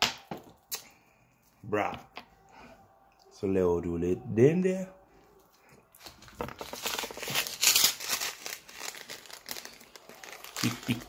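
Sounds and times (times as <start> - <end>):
plastic packet crinkling: 6.0 - 11.0.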